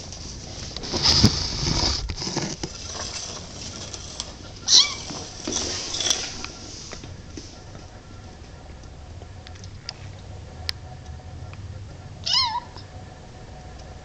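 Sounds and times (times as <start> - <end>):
rustling and pattering: 0.0 - 8.6
kitten meowing: 4.7 - 5.1, 12.2 - 12.8.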